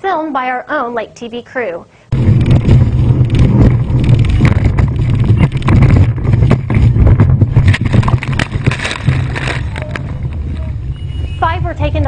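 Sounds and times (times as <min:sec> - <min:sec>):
sharp knocks and bangs: 0:02.1 - 0:10.2
wind buffeting microphone: 0:02.1 - 0:12.0.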